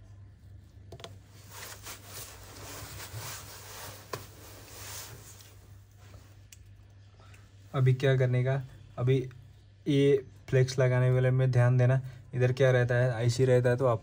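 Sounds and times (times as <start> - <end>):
low steady hum: 0.0 - 14.0
soft scraping: 0.4 - 6.4.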